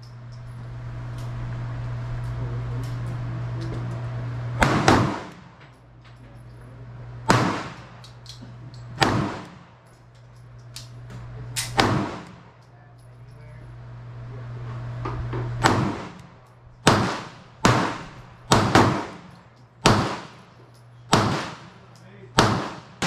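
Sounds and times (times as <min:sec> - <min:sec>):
steady low hum: 0:00.0 - 0:23.0
pistol gunshots echoing: 0:04.6 - 0:05.5, 0:07.3 - 0:08.0, 0:09.0 - 0:09.7, 0:11.6 - 0:12.5, 0:15.6 - 0:20.5, 0:21.1 - 0:23.0.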